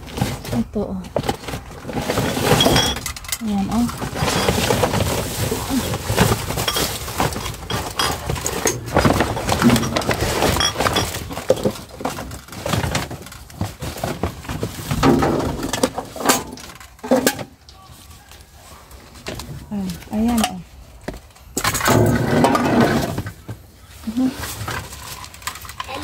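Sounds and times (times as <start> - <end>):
paper and plastic bags rustling: 0.0 - 26.0
knocks and clinks: 2.1 - 5.1, 5.8 - 13.0.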